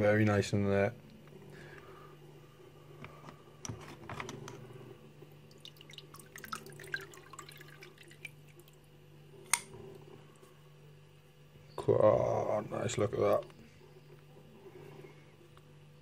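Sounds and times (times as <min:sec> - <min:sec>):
liquid sloshing and dripping: 0:05.2 - 0:08.9
small splashes into liquid: 0:05.5 - 0:08.8.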